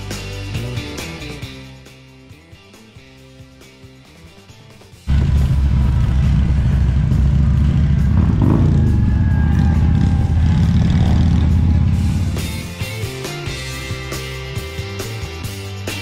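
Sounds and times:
motorcycle engines rumbling: 5.1s - 13.7s.

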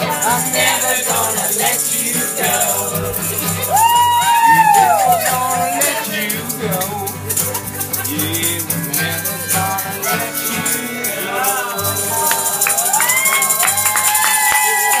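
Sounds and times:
voices singing sustained notes: 0.0s - 7.2s, 8.7s - 13.4s
acoustic guitar strumming: 0.0s - 15.0s
shaker rattling: 0.0s - 15.0s.

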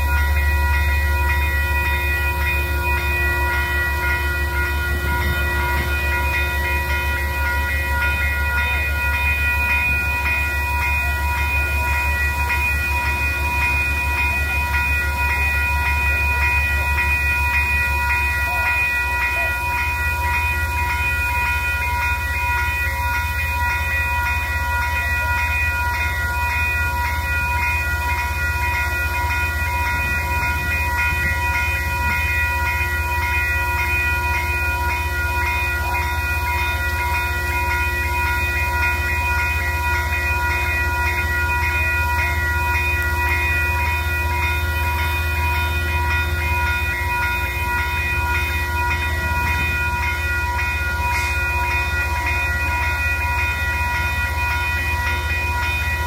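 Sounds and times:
locomotive engine drone: 0.0s - 56.0s.

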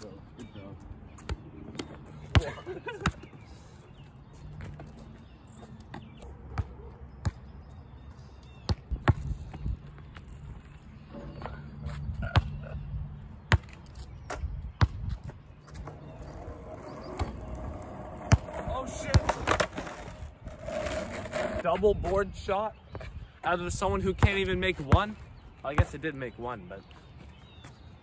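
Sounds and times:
basketball bouncing on asphalt: 1.1s - 3.4s, 4.4s - 7.9s, 8.6s - 10.5s, 13.4s - 21.5s, 24.1s - 25.2s.

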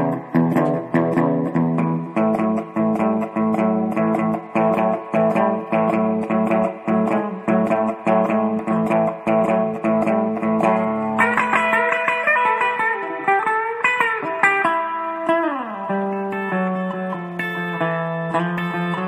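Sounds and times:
plucked guitar notes: 0.0s - 19.0s.

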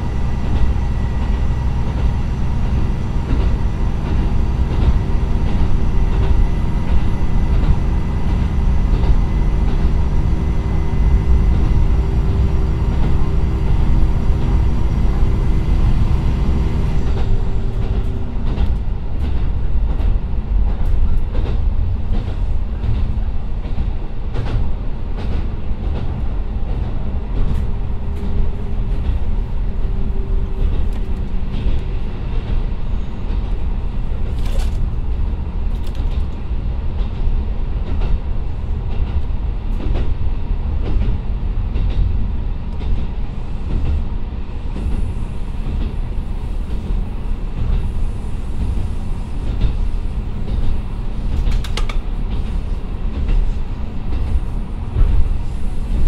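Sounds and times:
diesel engine tones: 0.0s - 18.8s
railcar interior rumble: 0.0s - 56.0s
wheel clicks over rail joints: 50.5s - 52.6s.

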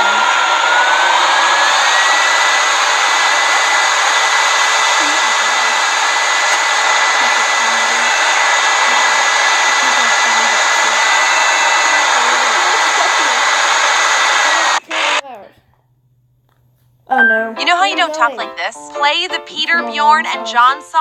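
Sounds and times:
electric blower motor whining: 0.0s - 15.3s.

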